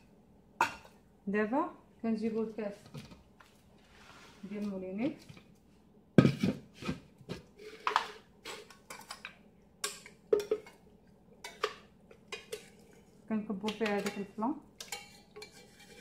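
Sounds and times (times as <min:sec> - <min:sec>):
kitchenware knocks and clinks: 0:06.2 - 0:07.0, 0:09.9 - 0:10.8.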